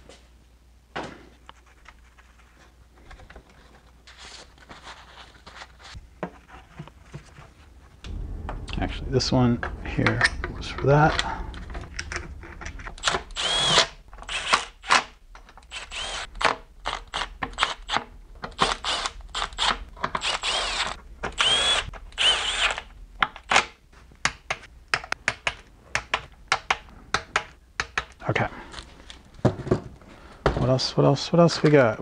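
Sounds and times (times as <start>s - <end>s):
cordless power tool whining: 13.0s - 16.3s, 18.7s - 22.8s.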